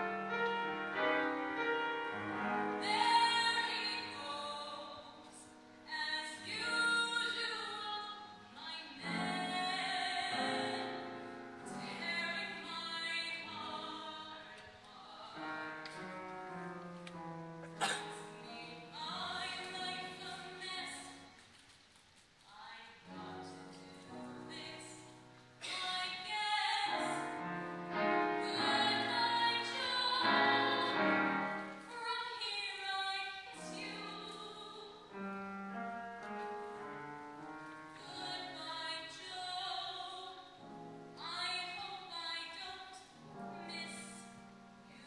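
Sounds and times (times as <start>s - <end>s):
piano accompaniment: 0.0s - 21.5s, 23.0s - 45.0s.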